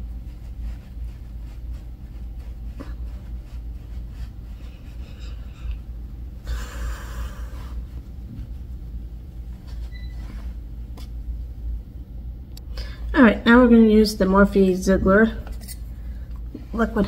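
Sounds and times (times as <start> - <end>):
steady low hum: 0.0 - 17.0
person sniffing: 4.6 - 7.9.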